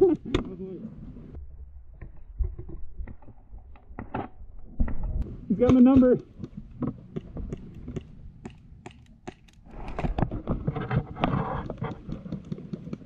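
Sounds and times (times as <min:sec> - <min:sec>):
airsoft gunfire clicks and snaps: 0:05.7 - 0:10.2.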